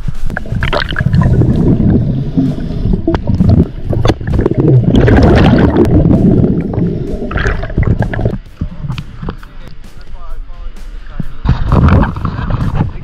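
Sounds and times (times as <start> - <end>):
underwater bubbling rumble: 0.0 - 9.8, 11.3 - 13.0
gush of bubbles: 0.3 - 8.4, 11.5 - 12.8.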